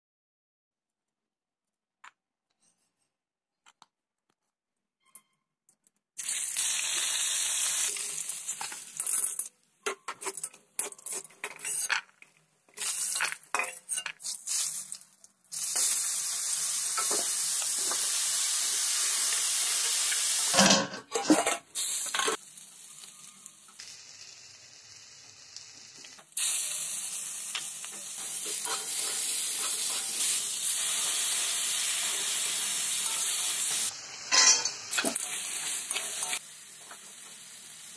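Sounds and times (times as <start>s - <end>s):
vegetables sizzling in hot oil: 6.2s - 9.5s, 12.8s - 20.6s, 21.7s - 37.9s
metal spatula scraping a pan: 9.9s - 12.1s, 13.1s - 14.2s, 28.1s - 30.6s, 33.0s - 36.4s.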